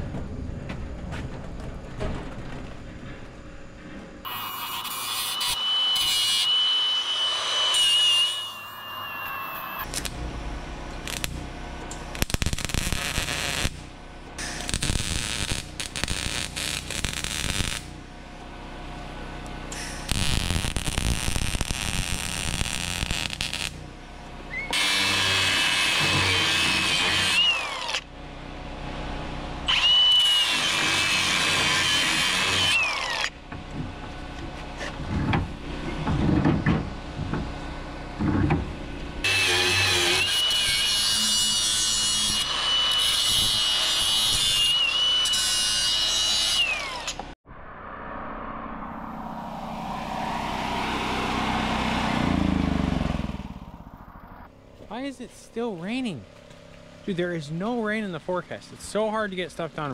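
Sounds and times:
power tool working metal: 4.3s - 18.0s, 19.7s - 23.8s, 24.7s - 28.1s, 29.7s - 33.4s, 39.2s - 47.3s.

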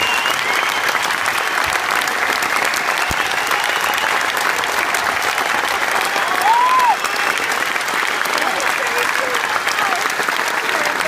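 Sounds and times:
whistle: 0.0s - 1.7s, 2.9s - 4.2s
audience applauding: 0.0s - 11.0s.

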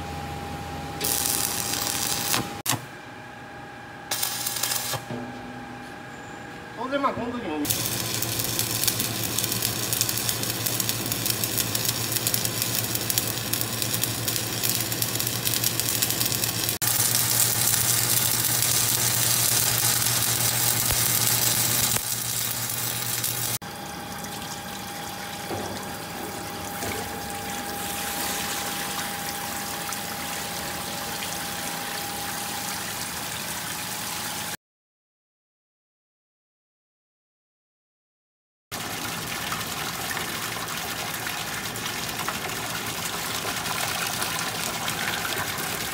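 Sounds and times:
low electrical hum: 0.0s - 33.5s
arc welding crackling: 1.0s - 2.8s, 4.1s - 5.0s, 7.6s - 23.6s
water running into a tank: 7.6s - 34.6s, 38.7s - 45.9s.

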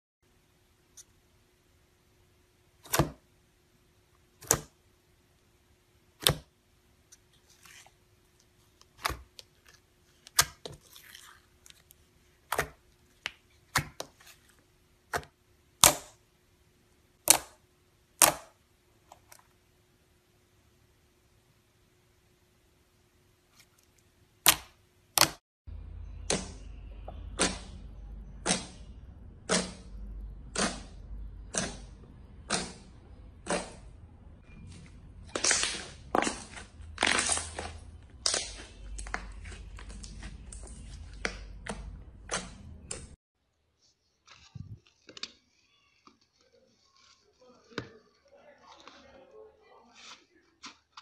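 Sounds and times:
low steady hum: 0.2s - 49.7s
faint squishing crackles: 6.2s - 16.2s, 30.5s - 51.0s.

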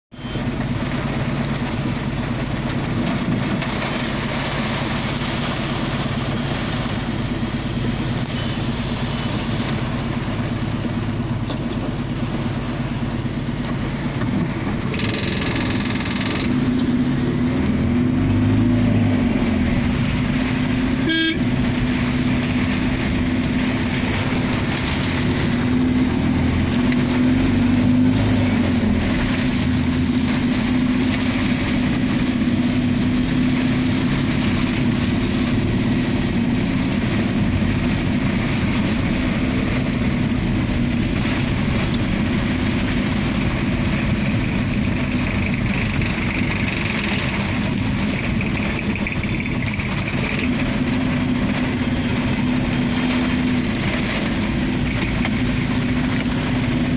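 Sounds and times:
heavy rain: 0.1s - 56.9s
vehicle engine running: 0.1s - 56.9s
horn honking: 21.0s - 21.5s.

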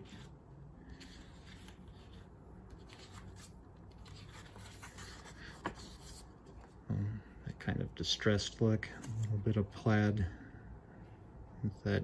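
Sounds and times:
paper sheet rustling: 0.9s - 6.7s.

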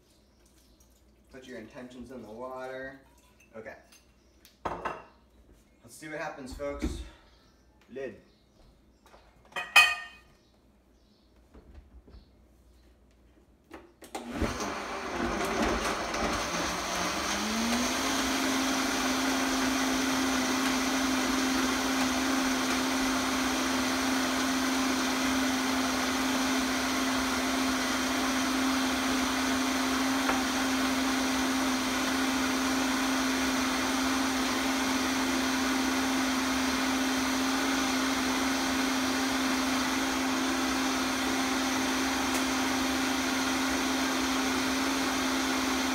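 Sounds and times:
blender motor whining: 14.1s - 45.9s.

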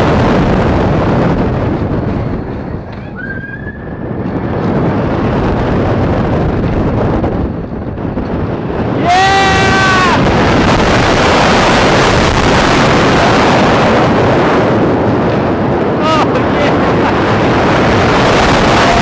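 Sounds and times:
heavy wind noise: 0.0s - 19.0s
roller coaster rushing down track: 0.0s - 19.0s
rider yelling: 9.0s - 10.3s.

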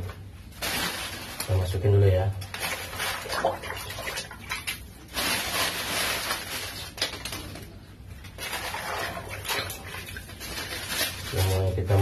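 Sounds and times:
dry leaves rustling and crackling: 0.6s - 1.7s, 5.1s - 7.3s, 10.2s - 12.0s.

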